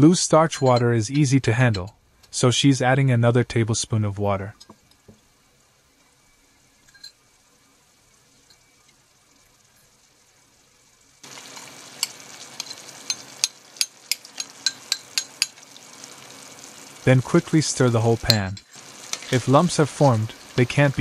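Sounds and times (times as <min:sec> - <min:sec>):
liquid sizzling in hot pan: 0:04.6 - 0:21.0
utensil clicking against pan: 0:11.4 - 0:15.8.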